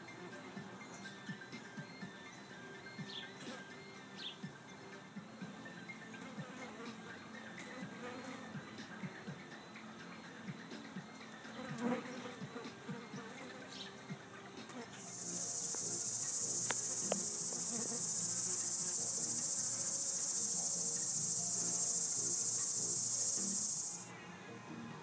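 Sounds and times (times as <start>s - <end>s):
insect buzzing: 11.4s - 14.0s, 14.6s - 24.1s.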